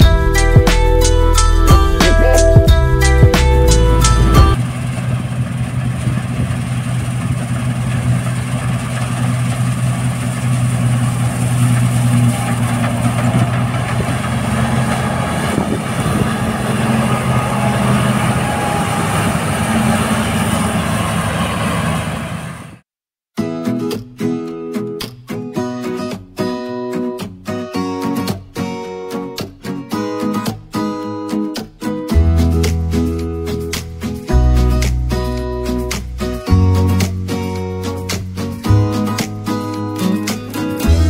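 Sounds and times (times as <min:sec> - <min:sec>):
combine harvester engine drone: 0:00.0 - 0:22.8, 0:34.3 - 0:41.0.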